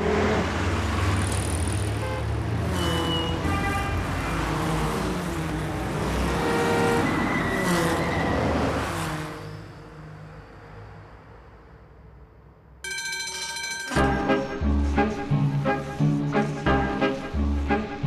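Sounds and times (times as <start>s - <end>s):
heavy traffic engines: 0.0s - 12.8s, 13.9s - 18.0s
car horns honking: 6.2s - 7.3s.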